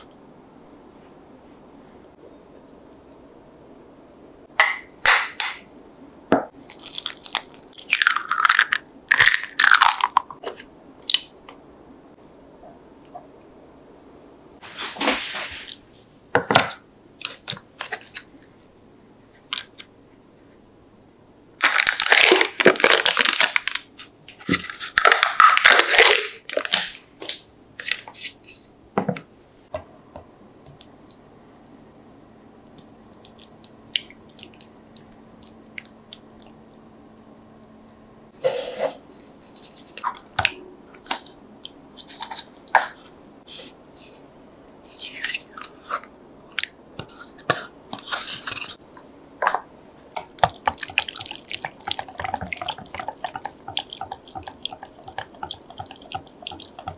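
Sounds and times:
foil lids ripping: 21.6s - 23.9s.

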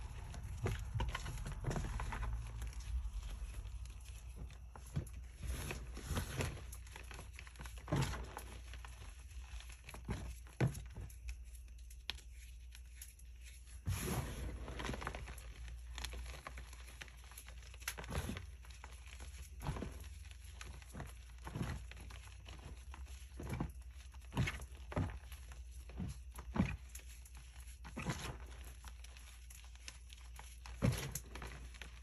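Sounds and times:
chalk powder rustling: 11.2s - 17.6s.

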